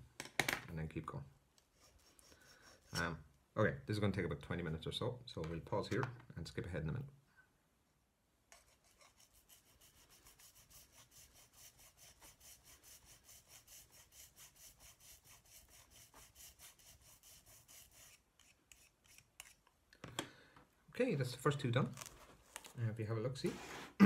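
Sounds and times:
hand file rasping on metal: 0:01.8 - 0:03.1, 0:08.5 - 0:19.6.

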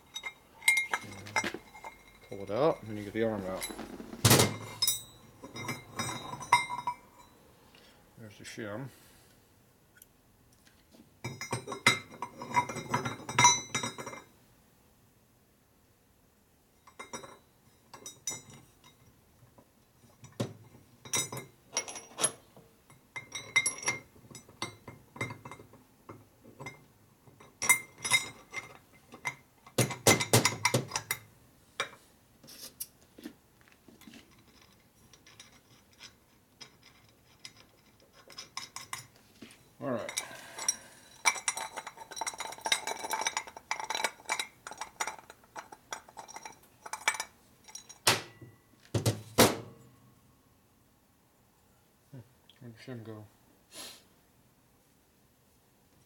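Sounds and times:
metal parts clinking and knocking: 0:00.0 - 0:07.0, 0:21.1 - 0:22.4, 0:34.0 - 0:39.1, 0:40.0 - 0:49.7.

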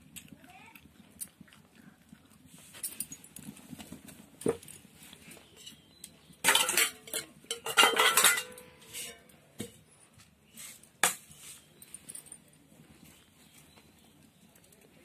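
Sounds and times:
pots and dishes clattering: 0:02.8 - 0:09.8
metallic ringing: 0:05.6 - 0:09.3.

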